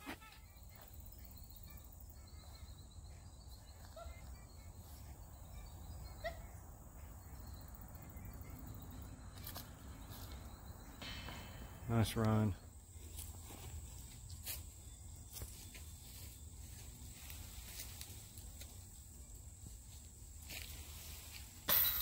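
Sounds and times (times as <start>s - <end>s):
faint bird chirps: 0.1s - 13.6s.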